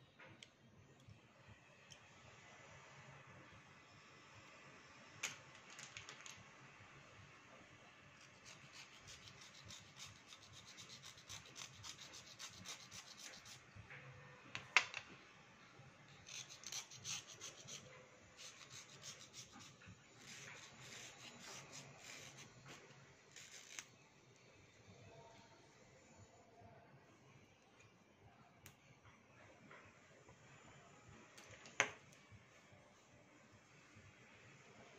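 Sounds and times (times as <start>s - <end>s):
blade scraping pencil: 8.4s - 13.6s, 16.3s - 22.6s, 23.3s - 23.9s.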